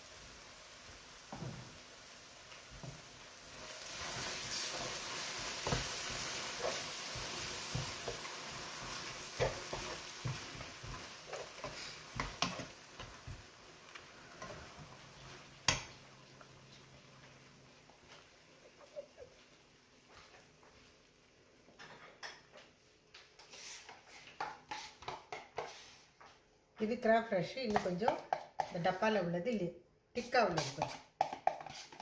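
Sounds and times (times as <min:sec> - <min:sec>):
sizzling hiss: 0:00.0 - 0:21.8
spatula scraping frying pan: 0:03.8 - 0:13.4, 0:23.4 - 0:26.1, 0:30.6 - 0:32.0.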